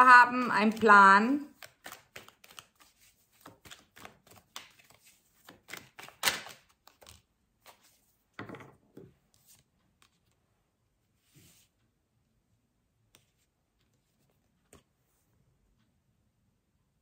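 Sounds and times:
cards being shuffled: 0.4 - 8.2.

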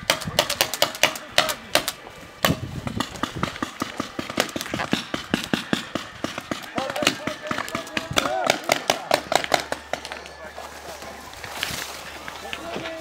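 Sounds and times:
paintball markers popping: 0.2 - 10.2.

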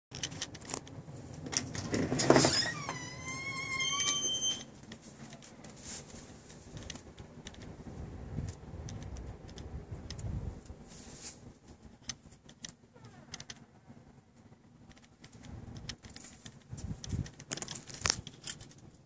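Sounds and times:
loud rush of door opening: 1.4 - 4.8
door hinge squeaking: 1.8 - 4.8, 12.9 - 13.5
light handling clicks: 8.4 - 10.8.

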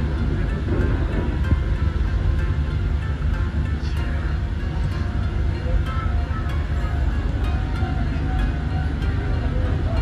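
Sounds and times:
background music: 0.0 - 10.0
diesel locomotive rumble: 0.0 - 10.0.

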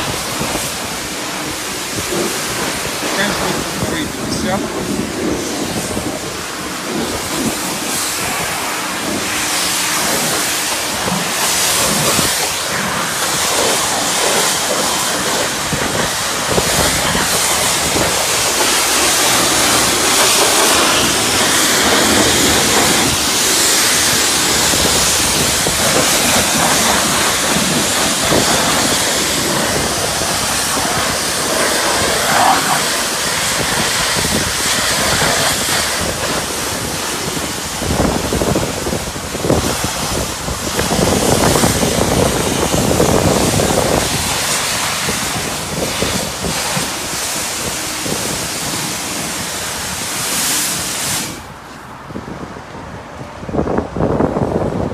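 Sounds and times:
pressure washer spraying water: 0.0 - 52.1.

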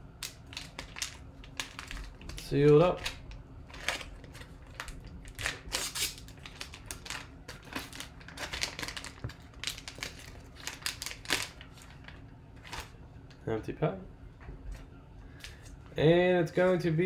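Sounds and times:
foil pouch crinkling: 0.2 - 13.0.

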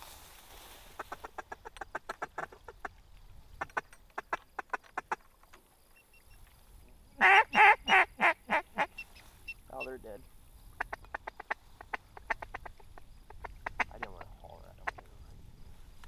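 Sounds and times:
duck quacking: 1.0 - 2.9, 7.2 - 9.1, 10.8 - 14.2.

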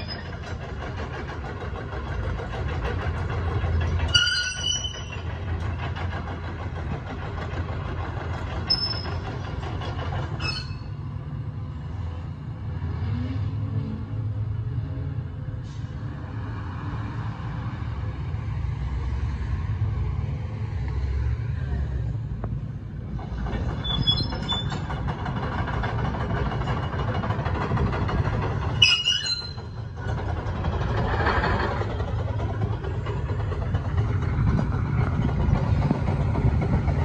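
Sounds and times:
excavator diesel engine: 0.0 - 37.0
steel tracks moving: 0.0 - 37.0
high-pitched squeals: 10.4 - 11.0, 28.8 - 29.9.

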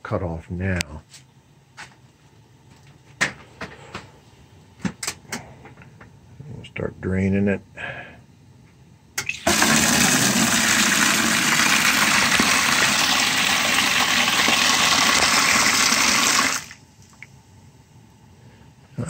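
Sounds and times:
water rushing into a bucket: 9.2 - 16.8.

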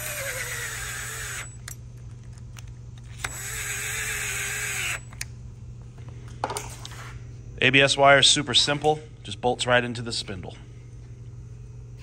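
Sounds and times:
cordless drill whirring: 0.0 - 1.8, 3.1 - 5.2.

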